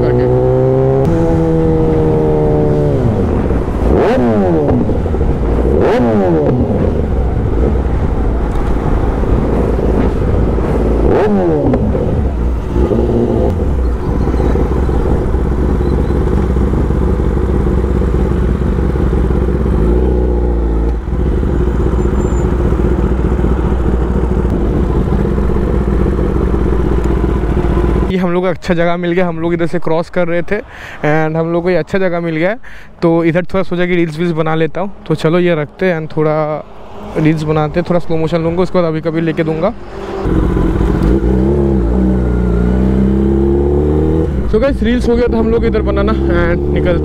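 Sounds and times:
motorcycle engine accelerating: 0:00.0 - 0:28.1, 0:39.6 - 0:47.0
low wind rumble: 0:00.0 - 0:47.0.

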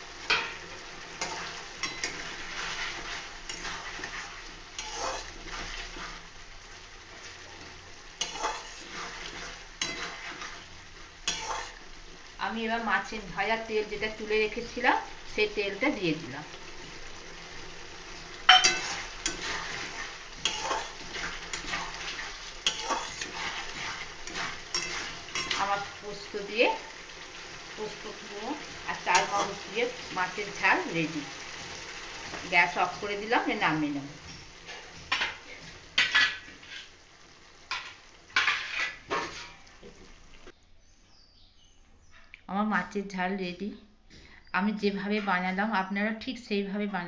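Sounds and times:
soft sizzle of frying: 0:00.0 - 0:47.0
metal spatula scraping a pan: 0:00.2 - 0:06.5, 0:07.1 - 0:12.2, 0:18.1 - 0:26.9, 0:34.2 - 0:37.1, 0:37.7 - 0:39.7
metal spatula clinking against pan: 0:18.5 - 0:19.4.

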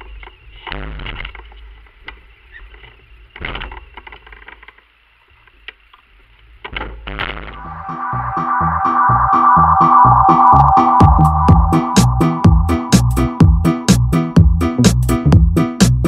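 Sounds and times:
low rumble: 0:07.6 - 0:14.7.

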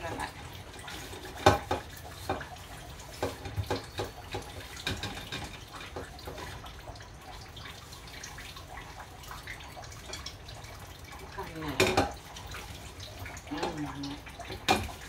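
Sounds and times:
utensils and dishes clicking: 0:00.0 - 0:06.6.

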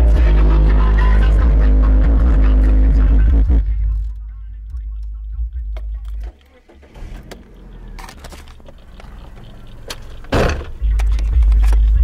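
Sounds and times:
deep subwoofer bass: 0:00.0 - 0:06.3
small clicks and handling noise: 0:10.9 - 0:12.0.

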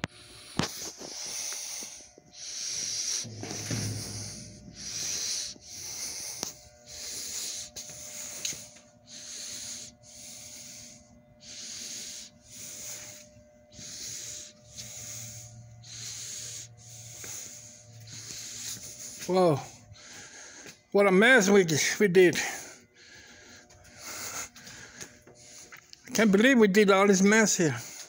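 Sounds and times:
person breathing hard: 0:00.0 - 0:26.1, 0:27.3 - 0:28.0.

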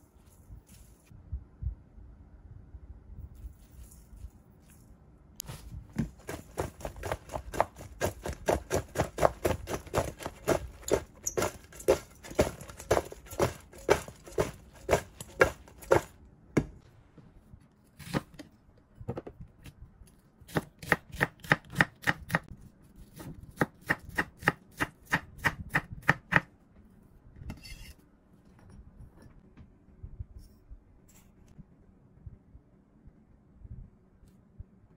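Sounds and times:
knife chopping on wooden board: 0:06.0 - 0:16.8, 0:20.5 - 0:22.5
vegetable slices rattling in steel bowl: 0:06.1 - 0:16.1.

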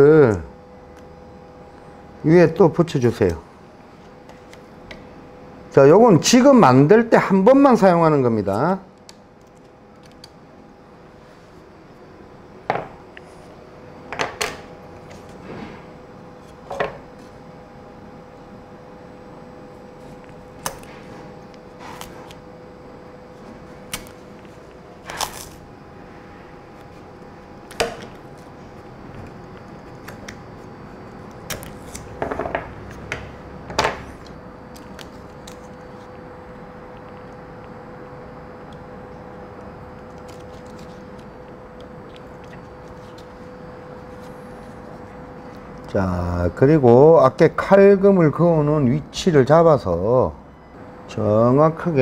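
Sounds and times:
faint steady hum: 0:00.0 - 0:52.0
wooden pieces knocking on workbench: 0:32.2 - 0:34.0
tape rustling: 0:40.0 - 0:44.9.

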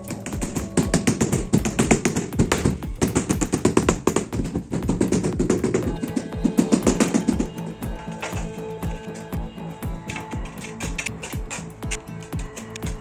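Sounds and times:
rubber mallet tapping tile: 0:00.0 - 0:07.6.

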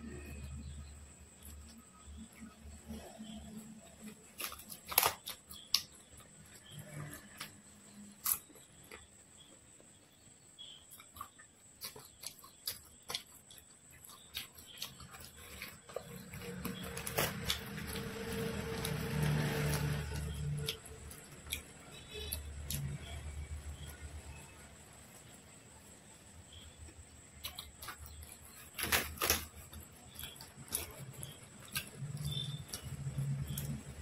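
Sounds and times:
fingers squishing food: 0:00.0 - 0:34.0
bread tearing: 0:01.4 - 0:09.1, 0:11.0 - 0:23.9, 0:27.3 - 0:34.0
wet chewing and lip smacks: 0:10.9 - 0:18.1.

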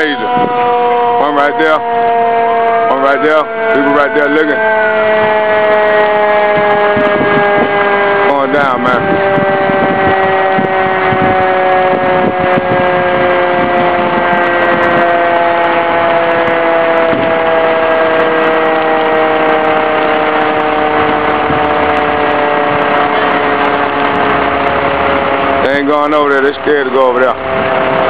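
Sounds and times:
fire truck engine running fast: 0:00.0 - 0:28.0.

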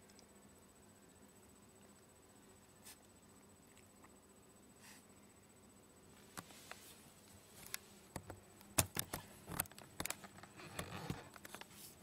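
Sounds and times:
soft clicks and rustles of handling: 0:06.2 - 0:12.0.

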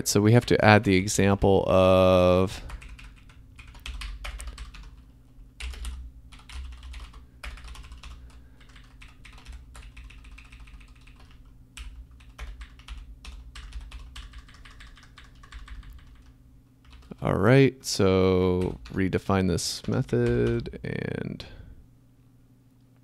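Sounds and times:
computer keyboard typing: 0:02.7 - 0:17.3, 0:18.6 - 0:19.0, 0:19.8 - 0:20.7.

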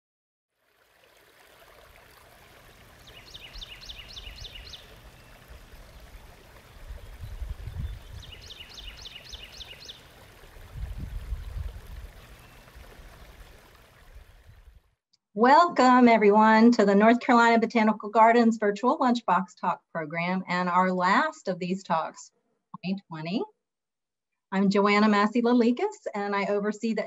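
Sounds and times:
flowing stream: 0:00.5 - 0:15.0
bird singing falling notes: 0:03.0 - 0:05.4, 0:07.0 - 0:10.0.

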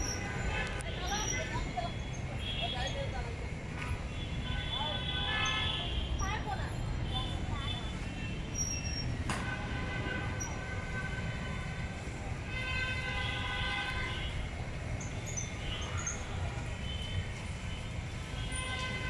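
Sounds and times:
city traffic rumble: 0:00.0 - 0:19.0
vehicle horns: 0:00.1 - 0:01.5, 0:04.1 - 0:06.3, 0:09.3 - 0:14.5, 0:15.3 - 0:19.0.

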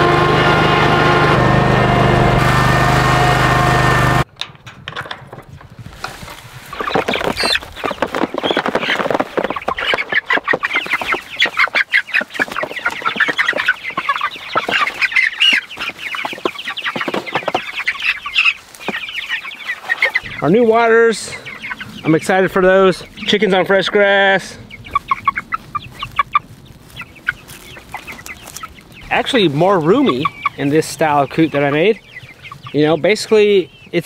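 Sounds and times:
chickens clucking and peeping: 0:00.0 - 0:04.3, 0:04.9 - 0:34.0
mower engine running: 0:00.0 - 0:04.3.

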